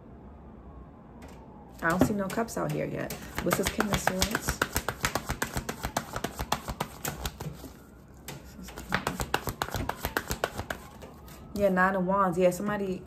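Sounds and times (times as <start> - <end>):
cards being shuffled: 3.1 - 11.4.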